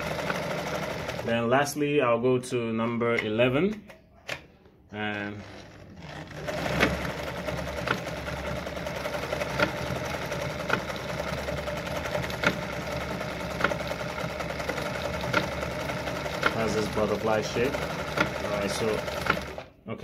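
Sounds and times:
sewing machine ticking: 0.0s - 1.5s, 5.0s - 19.7s
sewing machine motor hum: 0.0s - 1.6s, 4.9s - 19.8s.

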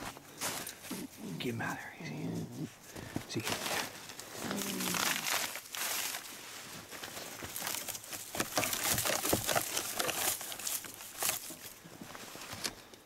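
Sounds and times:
dry brush rustling and crackling: 0.0s - 13.0s
twigs snapping: 3.3s - 11.8s.

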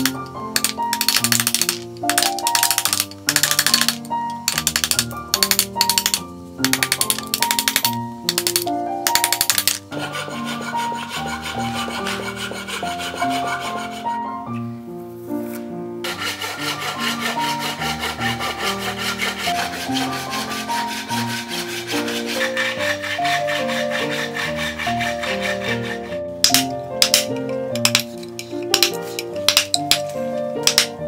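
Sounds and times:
hand saw rasping through wood: 0.0s - 6.1s, 9.2s - 14.2s, 16.0s - 28.0s
background music: 0.0s - 31.0s.

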